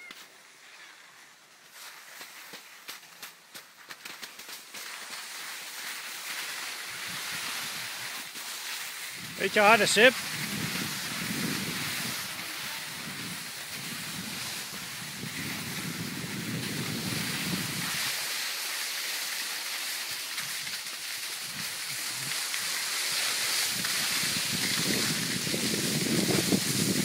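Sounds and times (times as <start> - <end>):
steady hiss: 0.2 - 27.0
wind buffeting microphone: 10.2 - 18.0, 23.7 - 27.0.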